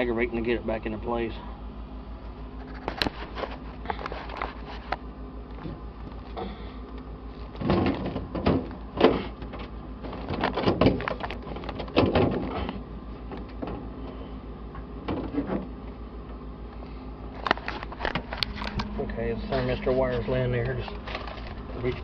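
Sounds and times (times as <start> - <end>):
steady low hum: 0.0 - 22.0
plastic panel knocking and rattling: 7.6 - 12.7.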